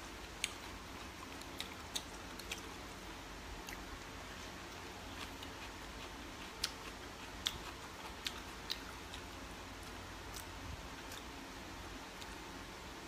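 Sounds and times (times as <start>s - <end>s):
low steady hum: 0.0s - 13.0s
wet mouth clicks chewing: 4.7s - 9.3s.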